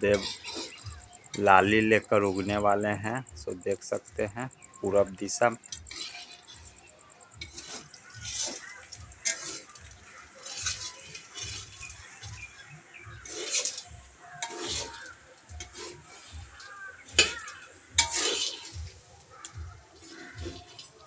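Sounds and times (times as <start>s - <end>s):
metal spatula scraping chickpeas: 0.0s - 21.0s
spatula clinking against pan: 13.3s - 18.8s.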